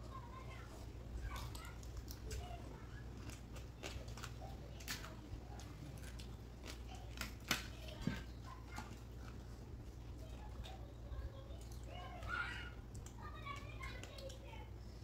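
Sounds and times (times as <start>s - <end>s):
chewing and crunching crab shell: 0.7s - 12.2s.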